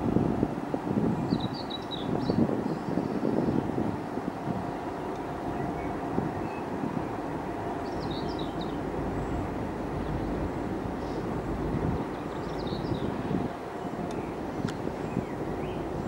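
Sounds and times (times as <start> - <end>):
distant vehicles rumbling: 3.9 - 16.0.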